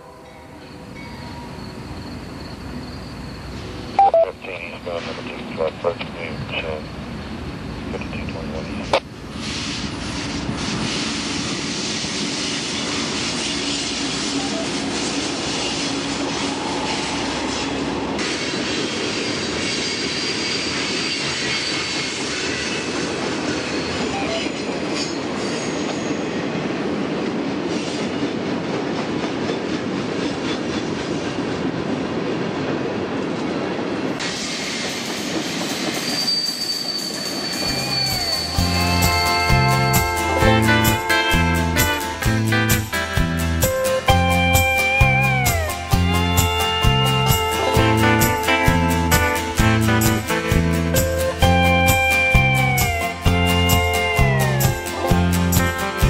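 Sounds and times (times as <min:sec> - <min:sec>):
diesel locomotive engine drone: 0:00.0 - 0:36.4, 0:37.1 - 0:56.0
freight cars rolling on rails: 0:00.0 - 0:56.0
high wheel squeal: 0:00.6 - 0:04.0, 0:12.8 - 0:26.4, 0:34.7 - 0:42.2.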